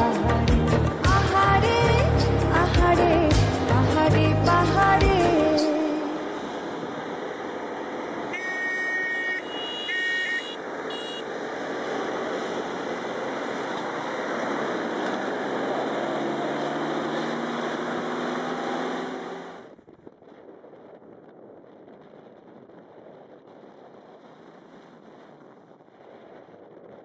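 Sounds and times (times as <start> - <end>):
vehicle engine and road noise: 0.0 - 27.0
vehicle horn honking: 8.3 - 11.3.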